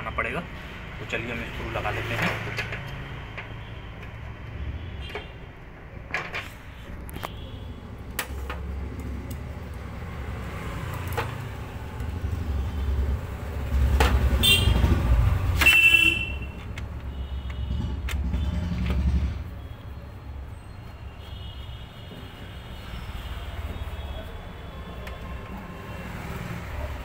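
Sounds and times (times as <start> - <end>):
passing road traffic rumble: 5.5 - 19.6, 22.8 - 27.0.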